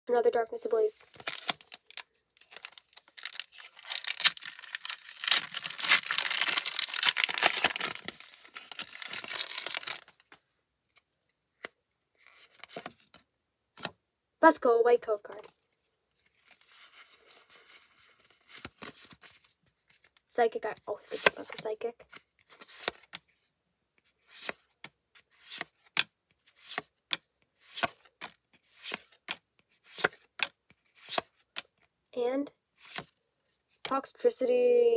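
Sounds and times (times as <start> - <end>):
foil wrapper crinkling: 1.1 - 10.3
cards sliding with papery swish: 25.2 - 25.8, 26.5 - 26.9, 27.6 - 29.2, 29.8 - 31.3, 32.8 - 33.1.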